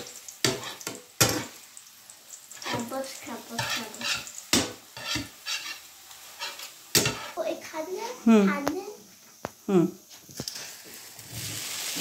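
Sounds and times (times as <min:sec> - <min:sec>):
spatula scraping a frying pan: 0:00.0 - 0:01.6, 0:02.5 - 0:07.5
food sizzling: 0:00.0 - 0:12.0.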